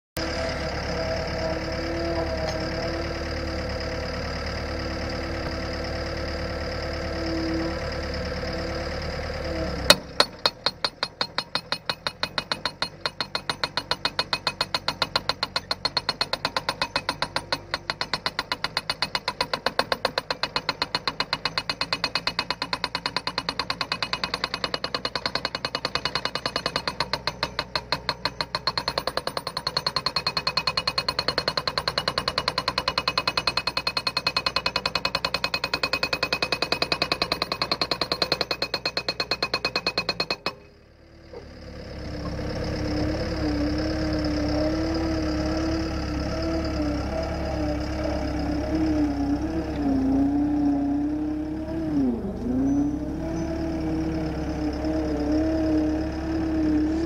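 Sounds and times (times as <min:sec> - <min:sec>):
skid-steer engine idling: 0:00.2 - 0:57.0
post driver pounding wooden post: 0:09.9 - 0:40.6.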